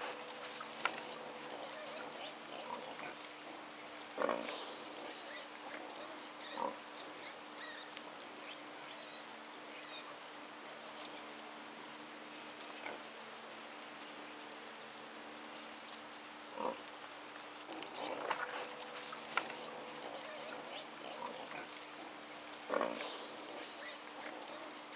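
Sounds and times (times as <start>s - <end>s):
piglets grunting and squeaking: 1.0s - 3.3s, 4.2s - 7.9s, 19.5s - 24.9s.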